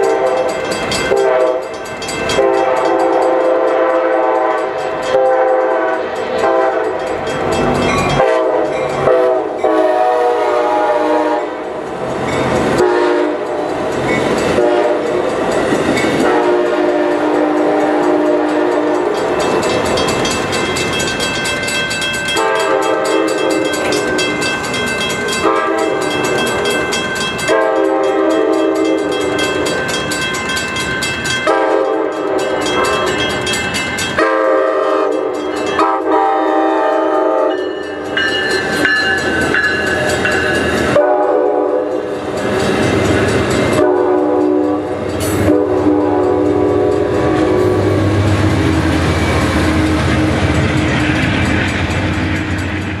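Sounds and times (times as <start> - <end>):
train horn blasts: 0.0 - 7.1, 8.1 - 11.7, 12.7 - 13.7, 14.5 - 15.2, 16.2 - 19.2, 22.3 - 23.9, 25.4 - 26.4, 27.4 - 29.2, 31.4 - 33.1, 34.2 - 37.8, 40.9 - 42.1, 43.7 - 51.2
train rumble and wheel clatter: 0.0 - 53.0.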